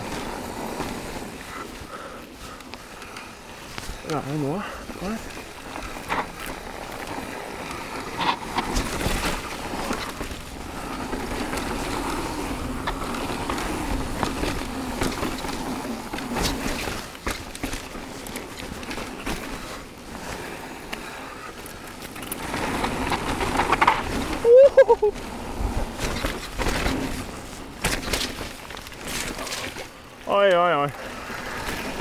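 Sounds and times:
bike tyres on dirt and rock: 0.0s - 32.0s
bike knocks and rattles: 3.0s - 20.5s, 21.7s - 24.4s, 25.2s - 30.2s.

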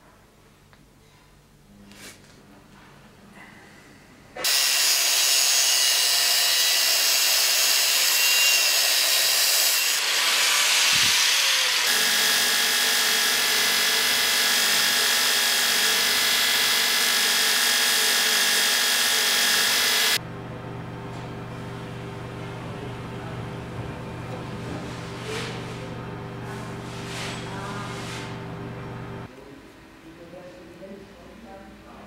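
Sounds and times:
belt grinder grinding: 4.4s - 20.2s.

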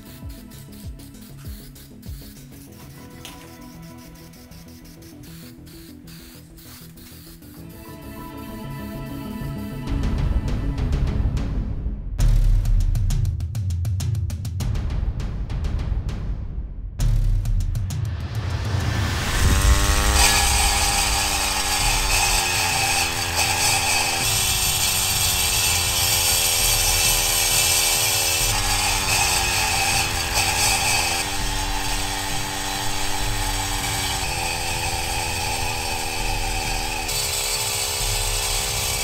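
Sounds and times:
chainsaw blades grinding concrete: 19.1s - 39.0s.

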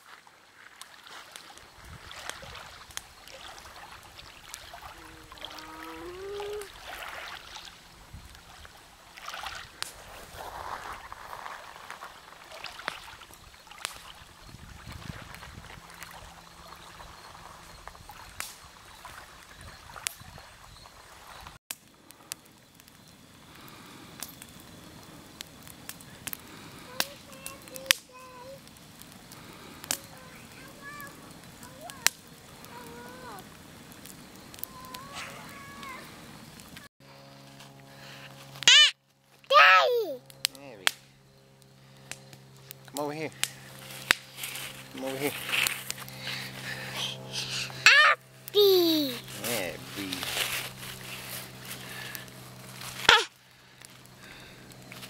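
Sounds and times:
waves lapping on gravel shore: 0.0s - 20.2s, 43.0s - 47.6s, 48.9s - 55.0s
campfire crackling and popping: 0.0s - 36.9s, 38.6s - 55.0s
low steady hiss: 0.0s - 36.9s
short pitched tones: 38.6s - 38.9s.

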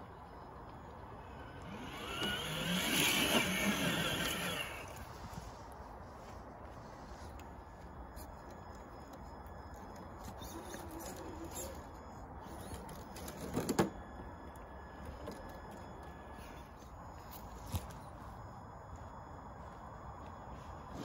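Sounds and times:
faint electric motor whir: 0.1s - 5.5s.

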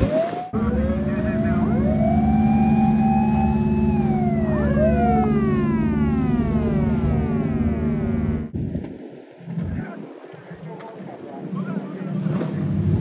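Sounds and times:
sirens wailing: 0.0s - 8.5s
boat engines droning: 0.0s - 13.0s.

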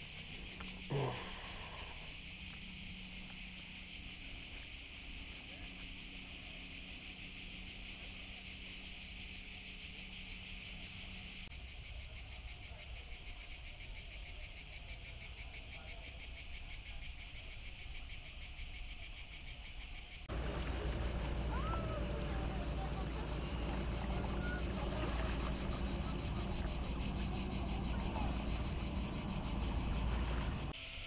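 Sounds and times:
cicadas shrilling: 0.0s - 31.0s
low rumble: 20.3s - 30.7s.

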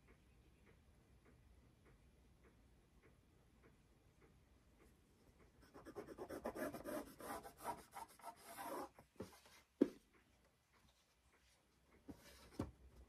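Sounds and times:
pencil scratching along ruler: 5.6s - 9.0s.

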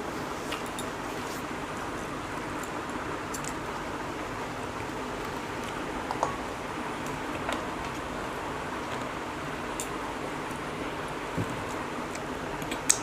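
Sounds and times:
steady background hiss: 0.0s - 13.0s
faint chewing clicks: 11.6s - 13.0s.

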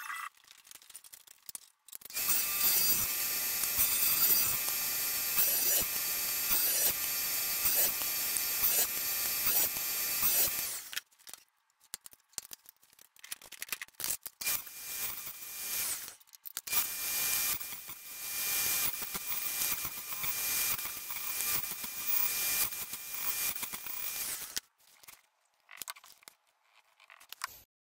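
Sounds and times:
faint clicks and rattles: 0.3s - 2.2s
table saw ripping wood: 2.0s - 11.0s.

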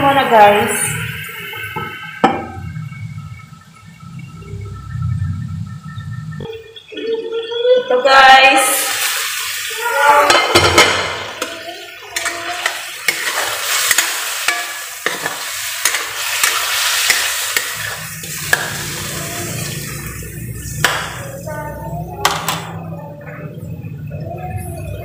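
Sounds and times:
chicken sizzling in a wok: 8.6s - 22.8s
spatula scraping and knocking pan: 12.2s - 19.0s.

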